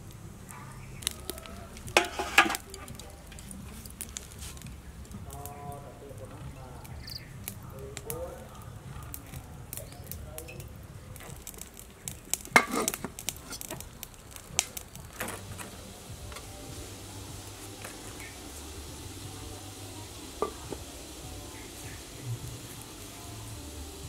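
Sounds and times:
steamer cooking low noise: 0.0 - 24.0
metal pot lid clattering: 2.0 - 2.8, 12.6 - 13.1.

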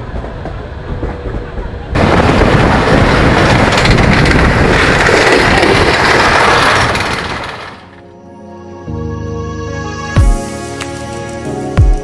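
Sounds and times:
wind rushing at train window: 0.0 - 8.0
trains passing close: 0.0 - 8.3
rolling rail noise: 0.0 - 8.4.

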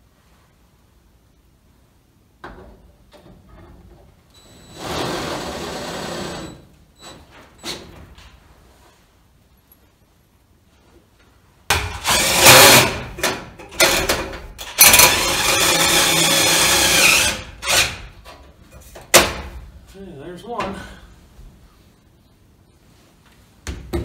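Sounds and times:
cordless drill driving screws: 12.0 - 13.0, 14.8 - 18.0.

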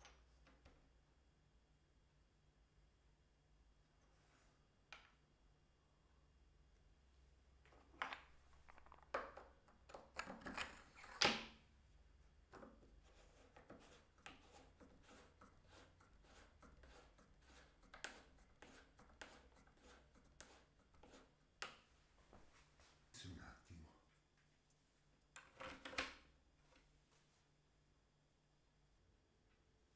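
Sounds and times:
faint clicks and scrapes: 7.6 - 11.3, 12.5 - 22.9.

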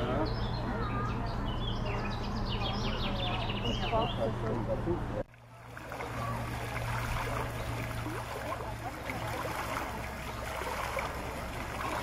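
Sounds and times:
fountain jet splashing into basin: 5.3 - 12.0.

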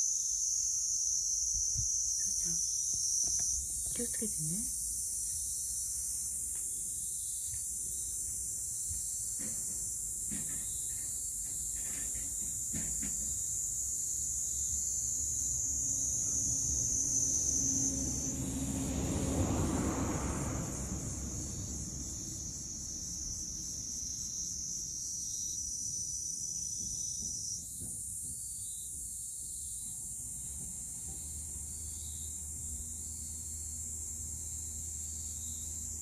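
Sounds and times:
high-pitched insect buzz: 0.0 - 6.3, 22.1 - 27.8, 31.8 - 36.0
distant engine: 16.1 - 23.3.

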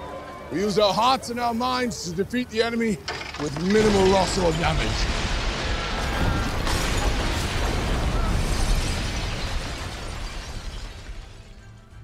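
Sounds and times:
crashing and explosions: 3.1 - 12.0.

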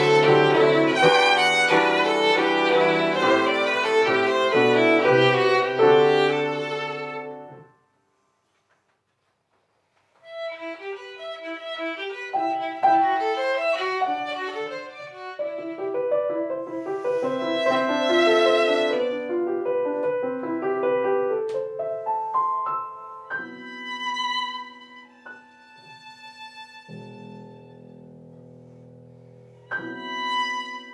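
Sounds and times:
violin: 0.0 - 7.7, 10.2 - 19.7, 23.3 - 28.2, 29.6 - 30.9
grand piano: 0.0 - 7.8, 10.3 - 30.9.

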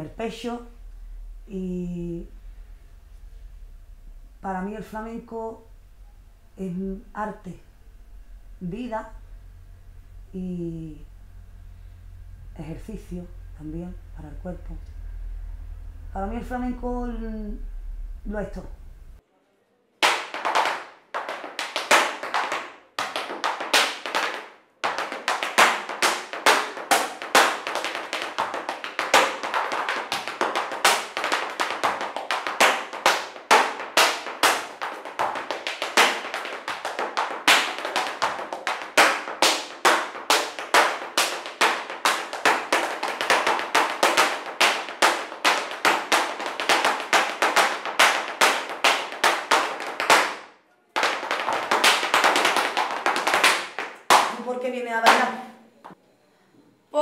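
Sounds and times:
shoes striking the floor in footwork: 20.0 - 54.4.

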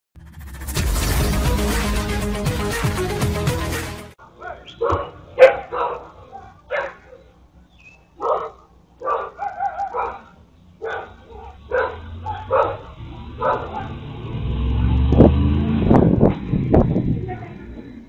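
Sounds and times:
dog barking: 4.4 - 7.3, 8.2 - 14.0
vehicle engine rumble: 10.0 - 18.0.

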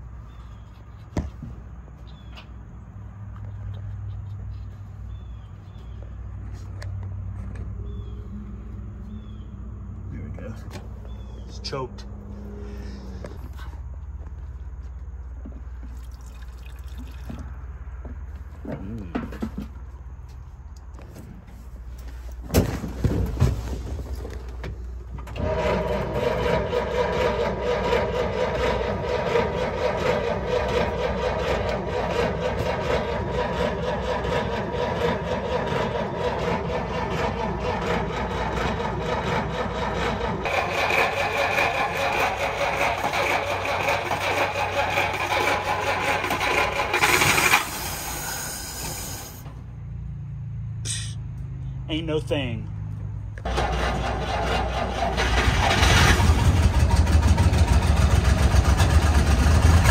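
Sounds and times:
starter cranking engine: 25.2 - 49.4, 53.4 - 59.9.

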